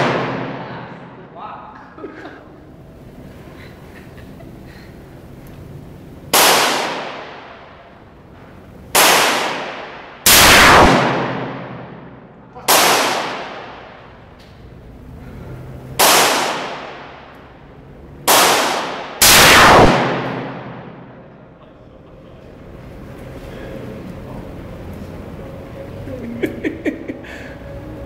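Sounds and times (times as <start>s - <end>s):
revolver gunshots indoors: 0.0s - 1.3s, 6.2s - 14.6s, 15.9s - 21.4s.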